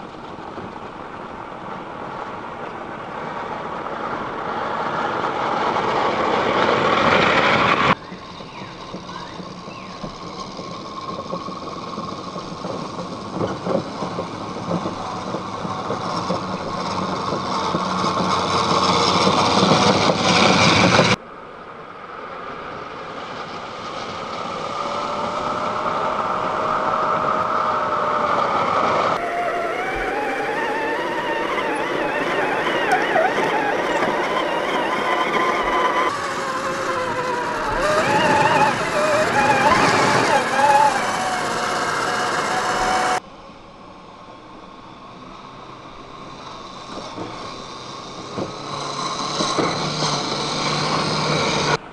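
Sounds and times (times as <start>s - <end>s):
electric motors whining: 24.6s - 43.2s.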